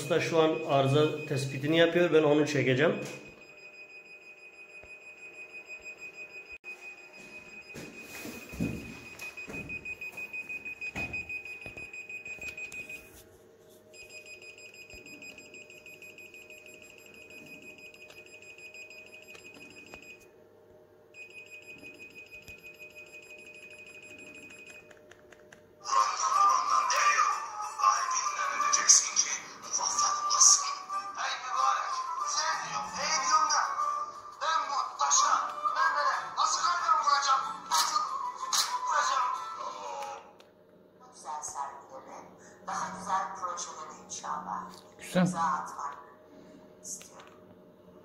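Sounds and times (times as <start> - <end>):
rapid high beeps: 0.0 - 1.7, 14.0 - 20.2.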